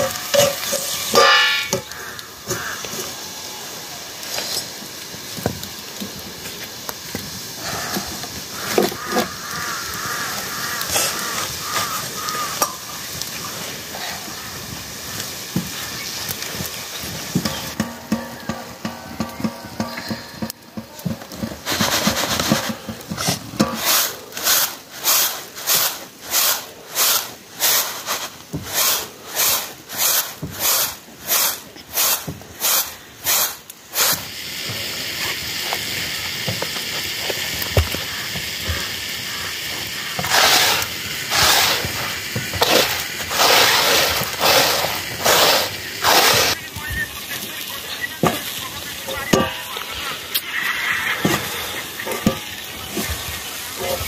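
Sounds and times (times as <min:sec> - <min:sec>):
rice swishing on winnowing tray: 0:21.2 - 0:36.1, 0:40.1 - 0:54.0.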